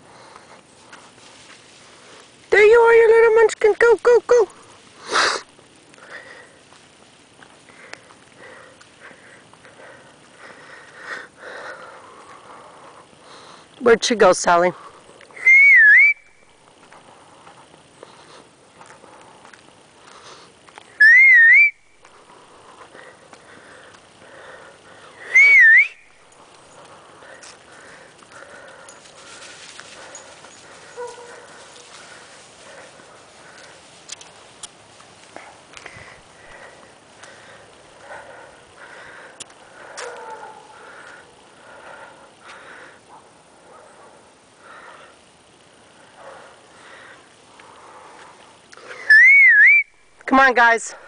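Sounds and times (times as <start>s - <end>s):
dry leaves rustling and crunching: 0.2s - 5.8s, 27.2s - 36.2s
person whistling: 15.4s - 16.3s, 21.0s - 21.8s, 25.3s - 26.1s, 49.1s - 49.9s.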